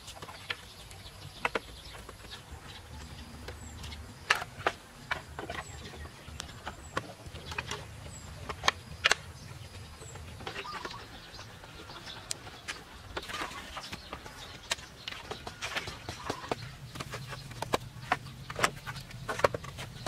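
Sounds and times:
bamboo poles knocking together: 0.0s - 20.0s
faint high bird chirps: 5.5s - 19.3s.

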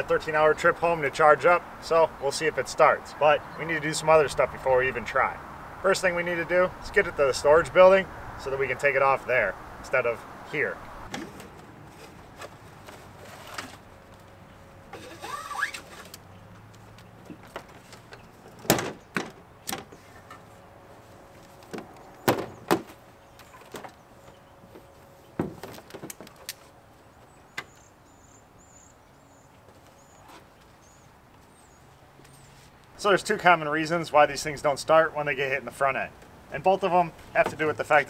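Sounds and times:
short squeak: 14.9s - 16.1s.

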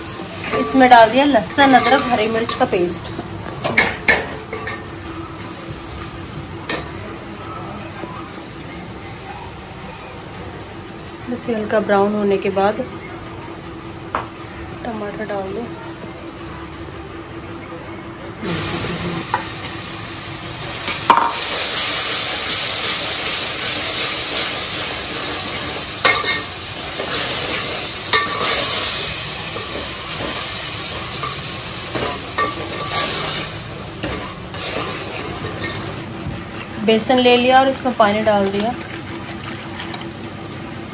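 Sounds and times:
tomatoes sizzling in hot oil: 0.0s - 7.3s, 18.4s - 38.8s.

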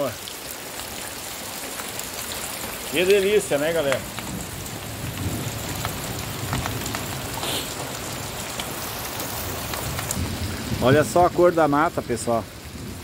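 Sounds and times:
close raindrops striking: 0.0s - 13.0s
steady rain on vegetation: 0.0s - 13.0s.

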